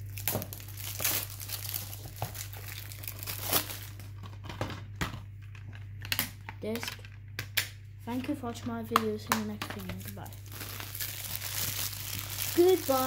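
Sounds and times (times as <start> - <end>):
shrink-wrap tearing and crinkling: 0.0 - 4.4, 9.8 - 13.0.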